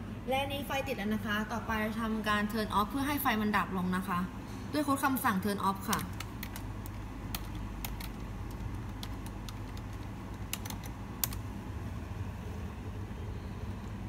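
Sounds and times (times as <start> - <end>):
keyboard typing: 5.7 - 11.5.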